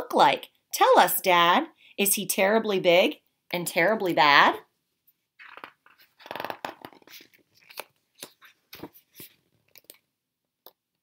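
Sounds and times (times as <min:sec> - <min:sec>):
book pages rustling: 0:05.2 - 0:10.1.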